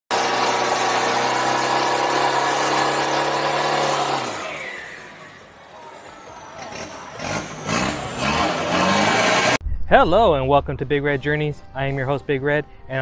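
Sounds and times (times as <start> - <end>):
car engine at high revs: 0.1 - 5.2, 6.7 - 9.6.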